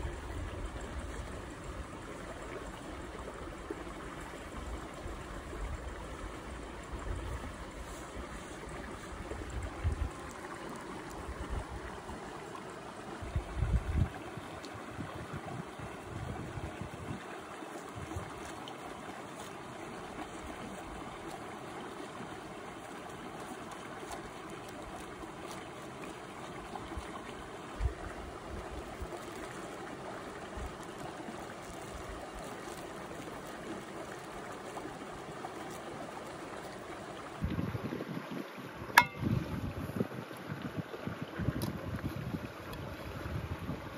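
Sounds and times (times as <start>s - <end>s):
stream rushing water: 0.0s - 43.9s.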